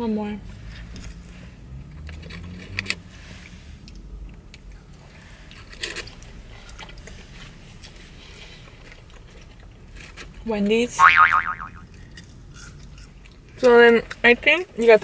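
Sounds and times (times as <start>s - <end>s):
people chewing fries: 2.0s - 10.4s, 11.9s - 15.0s
low steady hum: 11.0s - 12.0s.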